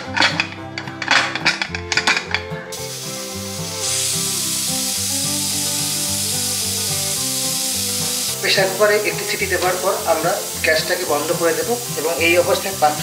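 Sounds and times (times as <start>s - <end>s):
background music: 0.0s - 13.0s
pressure cooker steam hissing: 2.7s - 13.0s.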